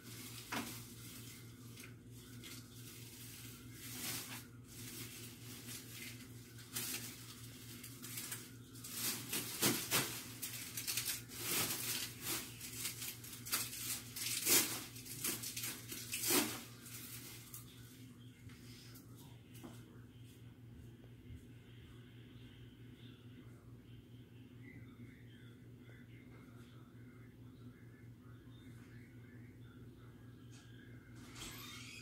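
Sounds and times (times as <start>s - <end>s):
soft crackling and rustling: 0.0s - 21.6s
steady low hum: 0.0s - 31.6s.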